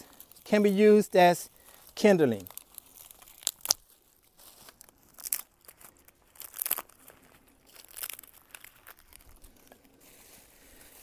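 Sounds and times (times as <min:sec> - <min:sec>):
plastic bag rustling: 0:01.6 - 0:11.0
sticks snapping: 0:02.4 - 0:07.1, 0:07.7 - 0:09.8.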